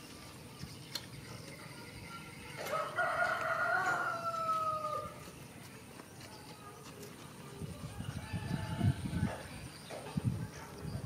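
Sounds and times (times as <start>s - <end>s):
rooster crowing: 2.6s - 5.2s, 7.8s - 9.4s.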